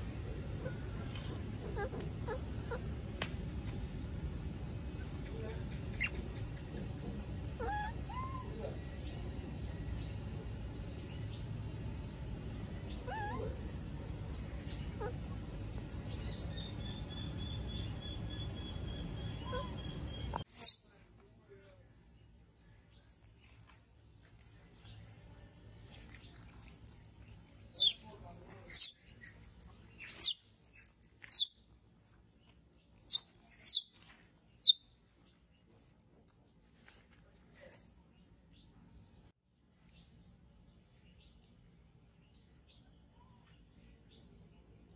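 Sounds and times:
low background noise: 0.0 - 44.9
baby monkey squealing: 7.6 - 8.6, 13.0 - 13.5, 27.8 - 28.0, 28.7 - 29.0, 33.0 - 33.9.

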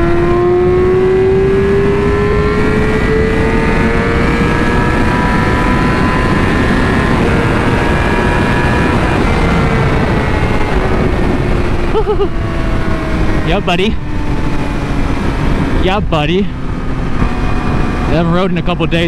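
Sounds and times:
motorcycle engine accelerating: 0.0 - 19.0
wind rush on microphone: 0.0 - 19.0.

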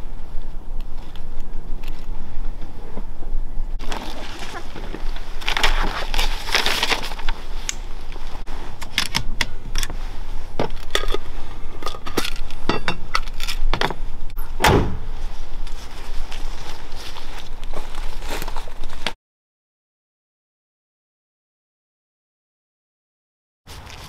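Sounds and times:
heavy thump: 13.8 - 15.2.

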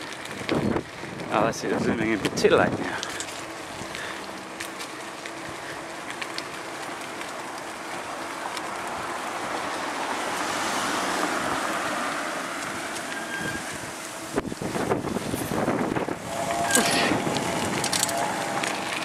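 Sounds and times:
rushing wind: 0.0 - 4.3, 8.7 - 19.0
bicycle road noise: 0.0 - 19.0.

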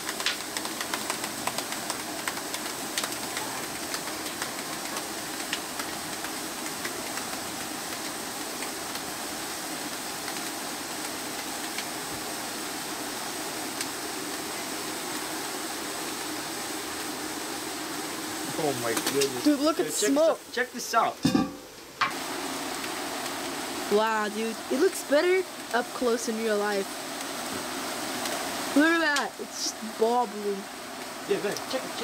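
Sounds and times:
sharp crackling clicks: 0.0 - 9.0
liquid nitrogen boiling hiss: 0.0 - 32.0.

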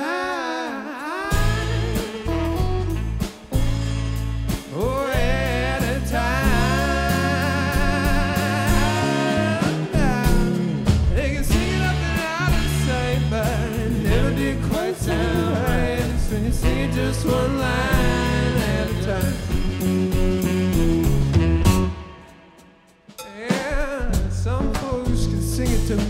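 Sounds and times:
saxophone with vibrato: 1.2 - 10.8, 11.5 - 22.9
electric guitar: 1.2 - 22.7
bass guitar: 1.3 - 22.4, 23.7 - 26.0
drum kit beat: 1.3 - 26.0.

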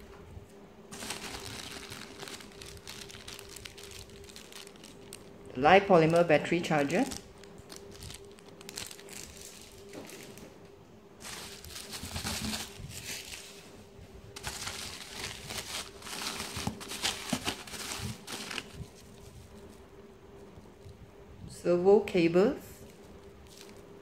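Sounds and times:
faint steady hum: 0.0 - 24.0
plastic bags crinkling: 0.9 - 10.4, 11.2 - 13.7, 14.4 - 19.8, 23.2 - 24.0.

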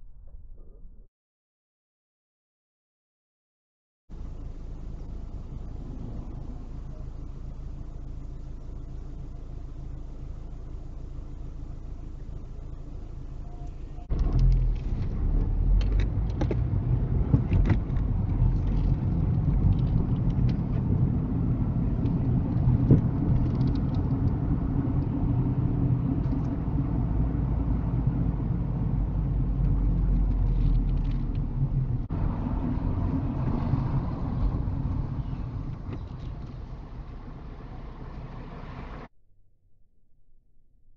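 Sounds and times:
car engine and tyre rumble: 4.1 - 39.2
sharp clicks and rattles: 14.1 - 25.2, 29.6 - 31.6.

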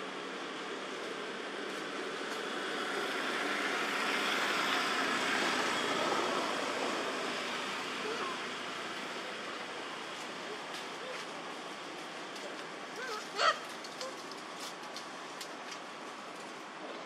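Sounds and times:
vehicle passing with rushing noise: 0.1 - 10.5.

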